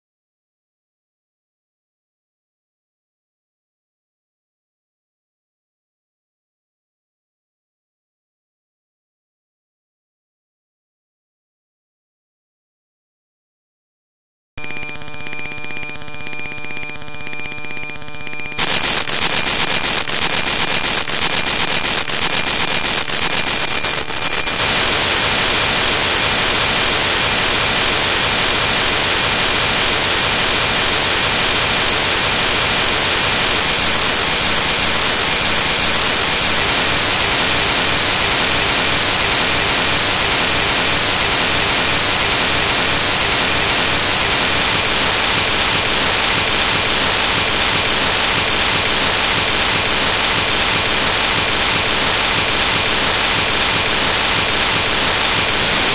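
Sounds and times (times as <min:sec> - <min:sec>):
harsh digital static: 0:14.6 - 0:55.9.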